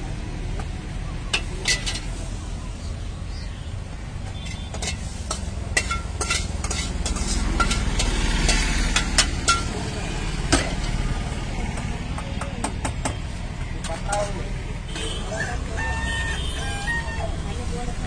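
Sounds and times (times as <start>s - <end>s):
food frying in hot oil: 4.7s - 10.2s.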